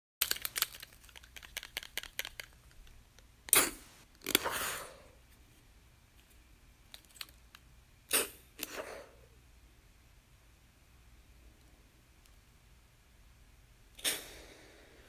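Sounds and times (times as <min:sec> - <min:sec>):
soft hiss: 0:02.5 - 0:15.0
inhaler spray puff: 0:03.5 - 0:05.1, 0:08.1 - 0:09.2, 0:14.0 - 0:15.0.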